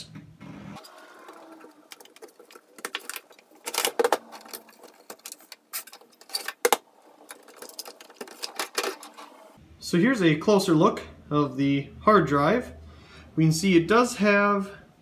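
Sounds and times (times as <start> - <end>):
plastic and metal clicks and rattles: 1.3 - 9.2.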